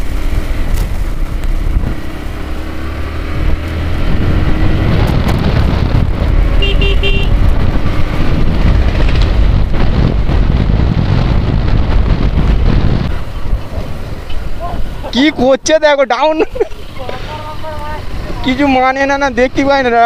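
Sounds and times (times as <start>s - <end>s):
motorcycle engine at road speed: 0.0s - 15.7s, 16.4s - 20.0s
road noise: 0.0s - 20.0s
horn beeps: 6.6s - 7.4s.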